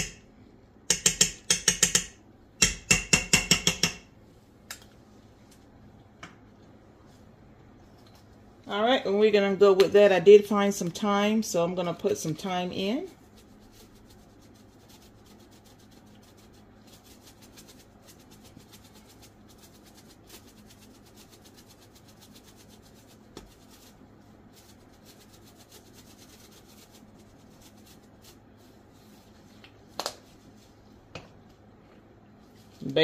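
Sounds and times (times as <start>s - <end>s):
low steady hum: 0.0s - 33.0s
dried herbs rattling in shaker: 11.5s - 30.8s.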